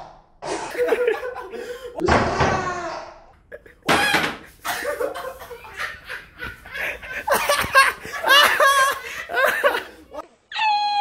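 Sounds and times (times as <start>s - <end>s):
woman laughing hard: 4.1s - 10.2s.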